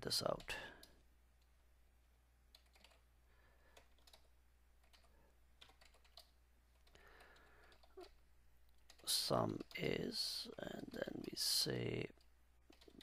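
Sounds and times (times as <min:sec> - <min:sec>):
keyboard typing: 0:02.5 - 0:03.1, 0:03.7 - 0:13.0.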